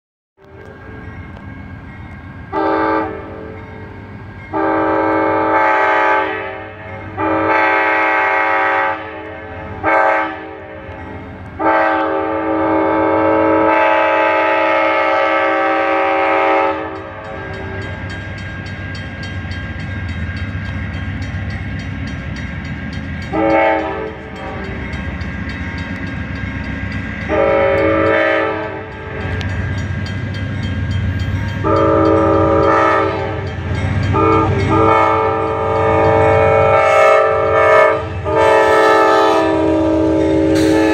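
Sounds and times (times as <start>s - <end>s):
locomotive horn blasts: 2.5s - 3.6s, 4.5s - 11.0s, 11.6s - 18.2s, 23.2s - 25.1s, 27.2s - 29.5s, 31.6s - 40.9s.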